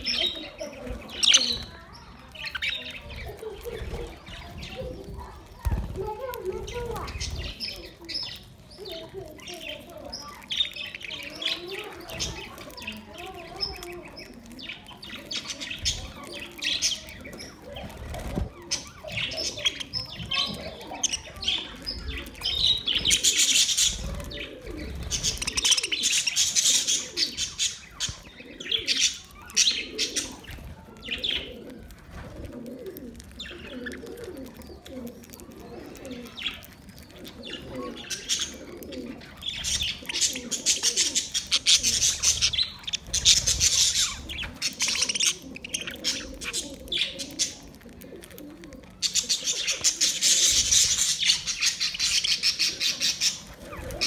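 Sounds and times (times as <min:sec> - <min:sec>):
budgerigars chattering and chirping: 0:00.0 - 0:32.0, 0:32.9 - 0:54.0.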